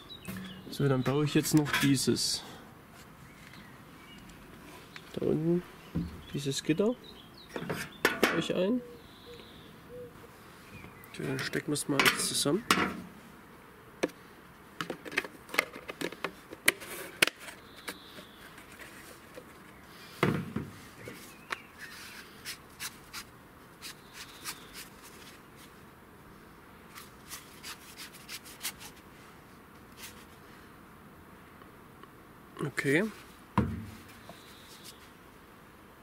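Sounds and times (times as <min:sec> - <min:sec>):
plastic knock: 0:33.6 - 0:34.0.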